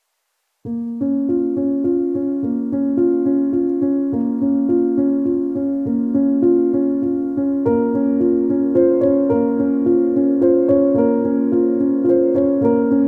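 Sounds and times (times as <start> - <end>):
keyboard playing sustained notes: 0.7 - 13.0.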